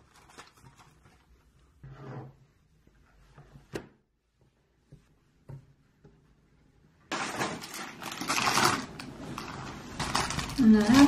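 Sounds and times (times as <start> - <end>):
plastic packaging crinkling: 0.0 - 1.0, 7.1 - 11.0.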